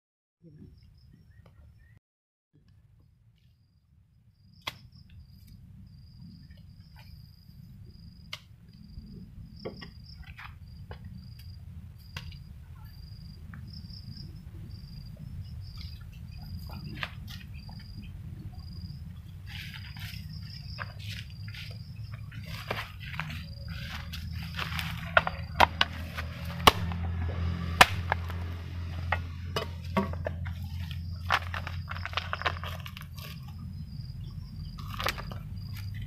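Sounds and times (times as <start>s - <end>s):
continuous low rumble: 2.6s - 36.0s
insect chirping trill: 3.4s - 36.0s
soil being dug: 18.6s - 36.0s.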